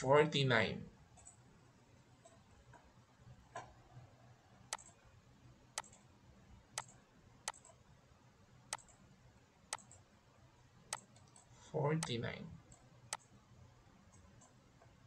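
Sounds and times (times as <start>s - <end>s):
low room hum: 0.0s - 15.0s
mouse buttons clicking: 4.7s - 5.0s, 6.8s - 7.8s.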